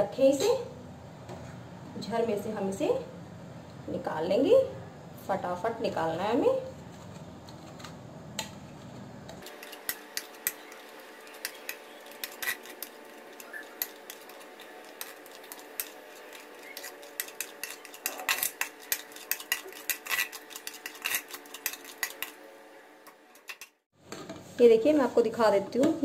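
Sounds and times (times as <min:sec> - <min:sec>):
metal utensils clinking on ladle: 0:09.5 - 0:22.4.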